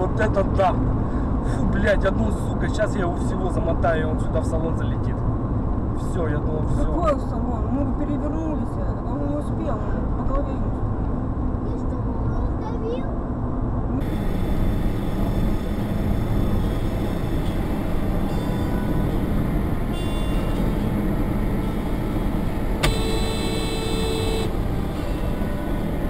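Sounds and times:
car road and engine noise: 0.0s - 26.0s
steady tone: 14.0s - 26.0s.

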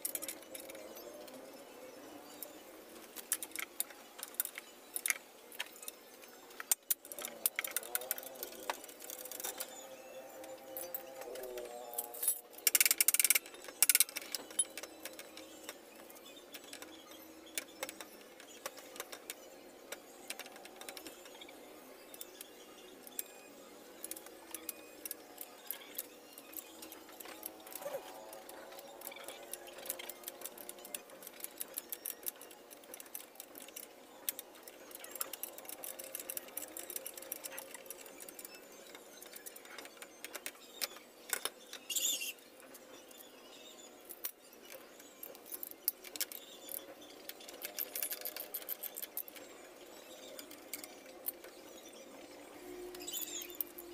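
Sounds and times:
hand tool clicking and rattling: 10.8s - 15.5s, 24.0s - 40.6s, 45.2s - 49.4s.

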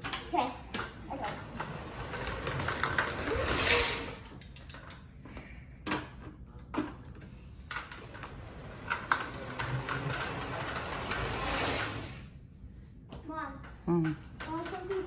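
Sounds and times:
plastic wheels rattling rumble: 0.8s - 5.0s, 7.7s - 12.3s, 14.1s - 15.0s.

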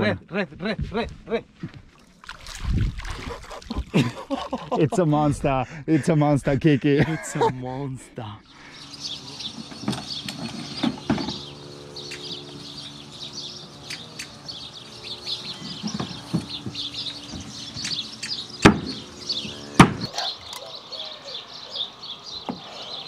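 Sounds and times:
steady low hum: 0.0s - 23.0s
birds chirping: 3.1s - 23.0s
sharp knocks: 18.6s - 19.0s, 19.8s - 20.1s.

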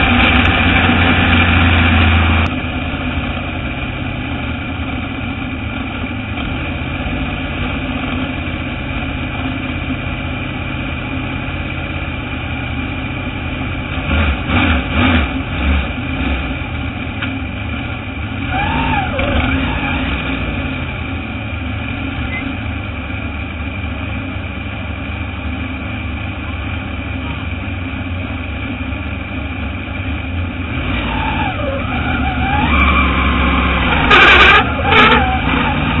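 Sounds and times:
race car engine idling: 0.0s - 19.8s, 20.4s - 36.0s
engine throttle blips: 0.0s - 36.0s.

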